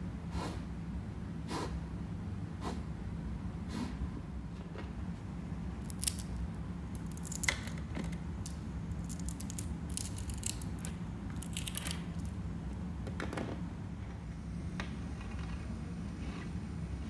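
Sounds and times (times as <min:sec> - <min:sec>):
magnet balls clicking: 0:05.8 - 0:12.4.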